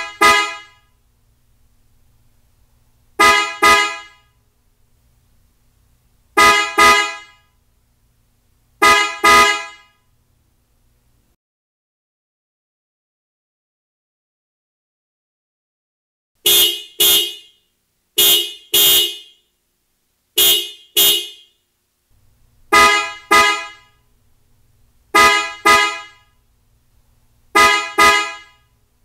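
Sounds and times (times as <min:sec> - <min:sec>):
car horn double blasts: 0:00.0 - 0:00.8, 0:03.2 - 0:04.3, 0:06.4 - 0:07.4, 0:08.8 - 0:10.0, 0:16.4 - 0:17.6, 0:18.2 - 0:19.5, 0:20.4 - 0:21.6, 0:22.7 - 0:24.0, 0:25.1 - 0:26.3, 0:27.5 - 0:28.7.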